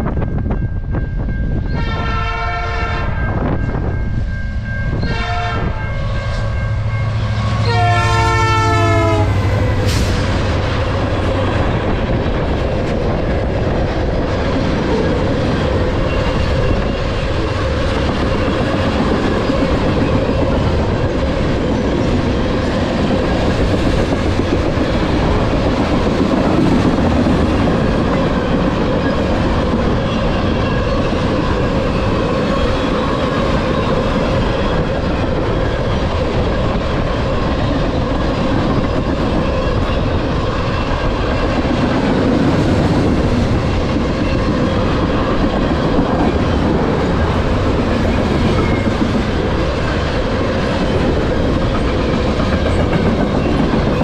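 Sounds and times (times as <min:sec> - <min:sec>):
train wheels rumbling and clattering: 0:00.0 - 0:54.0
train horn: 0:01.7 - 0:03.5, 0:05.0 - 0:10.2.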